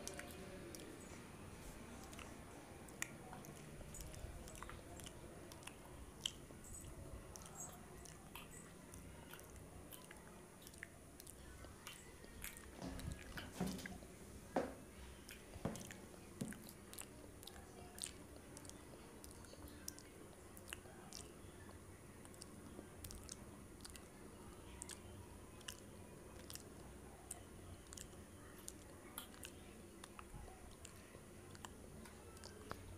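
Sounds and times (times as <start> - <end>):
person chewing fried snack: 2.0 - 13.4, 26.4 - 26.6, 27.3 - 32.9
wet mouth clicks and smacks: 2.9 - 13.5, 22.2 - 24.1, 25.6 - 25.8, 26.4 - 26.7, 27.3 - 31.8.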